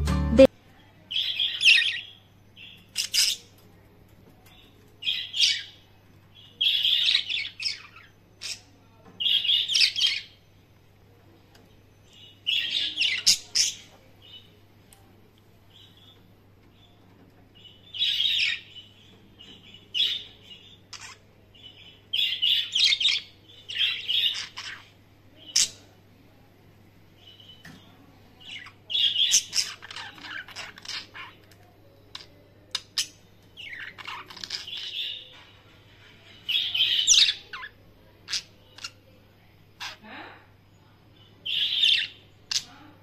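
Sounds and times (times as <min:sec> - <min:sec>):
budgerigars chirping and warbling: 0:01.1 - 0:03.6, 0:05.0 - 0:05.8, 0:06.4 - 0:10.4, 0:12.1 - 0:14.5, 0:17.6 - 0:25.8, 0:28.4 - 0:35.5, 0:36.3 - 0:39.1, 0:39.8 - 0:40.4, 0:41.3 - 0:42.9.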